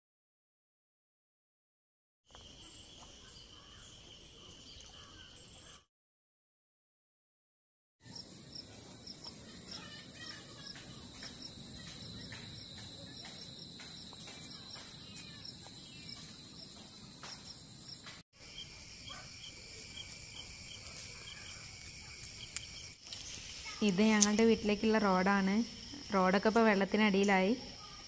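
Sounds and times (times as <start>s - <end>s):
insects chirping: 2.3s - 5.4s, 8.0s - 28.0s
high insect drone: 8.0s - 26.5s.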